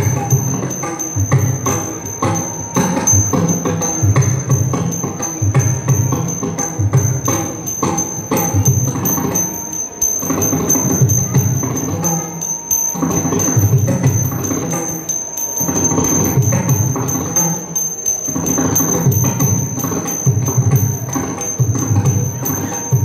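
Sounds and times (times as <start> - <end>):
drum strokes: 0.0 - 23.0
small hand cymbals beat: 0.0 - 23.0.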